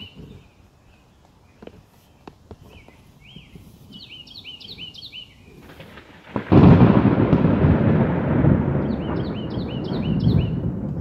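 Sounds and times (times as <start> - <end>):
bird chirping: 0.0 - 6.4, 8.7 - 10.9
thunderclap rumbling: 5.6 - 11.0.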